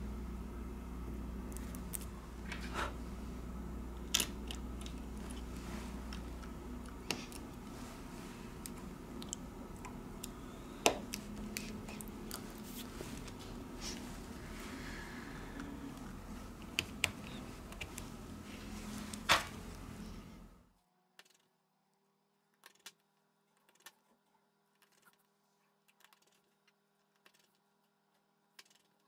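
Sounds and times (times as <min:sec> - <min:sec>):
low hum: 0:00.0 - 0:20.7.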